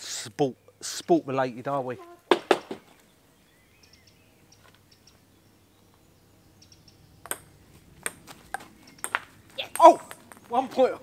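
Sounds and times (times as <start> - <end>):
faint bird chirps: 1.8 - 7.7, 8.4 - 10.7
sharp knocks: 2.3 - 2.8
table-tennis ball click: 7.2 - 9.2.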